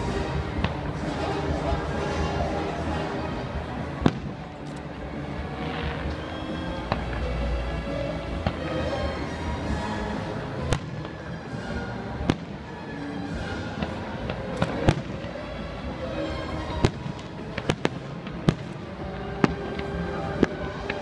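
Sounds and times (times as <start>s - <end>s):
music playing: 0.0s - 21.0s
fireworks bursting with bangs: 3.4s - 7.7s, 8.3s - 21.0s.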